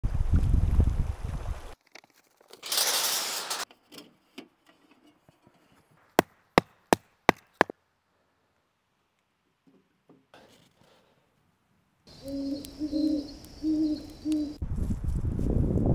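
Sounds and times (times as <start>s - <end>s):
wind rumble: 0.0s - 1.8s, 12.1s - 15.9s
rustling: 1.7s - 6.2s
axe chopping wood: 6.1s - 7.7s.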